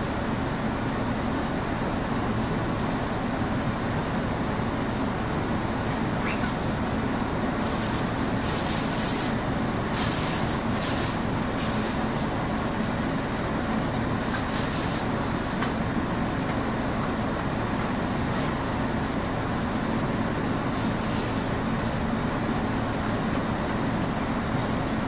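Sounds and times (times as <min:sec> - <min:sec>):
bus engine idling: 0:00.0 - 0:25.0
short high hisses: 0:20.7 - 0:21.5.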